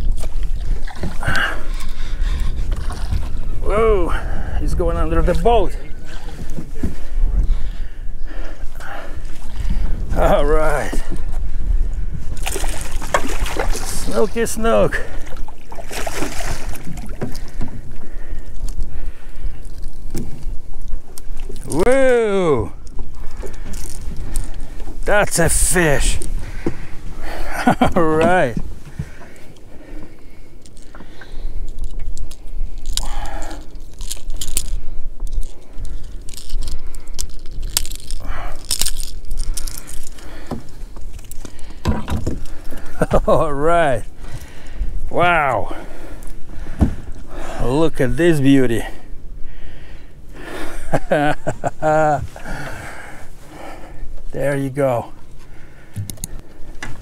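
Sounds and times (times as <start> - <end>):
wind rumble on microphone: 0.0 - 14.1
fish and gear being handled: 0.0 - 49.4, 50.0 - 57.0
knocks and clatter on boat: 26.2 - 27.0, 27.8 - 29.4, 41.7 - 43.3, 46.7 - 47.1, 55.9 - 57.0.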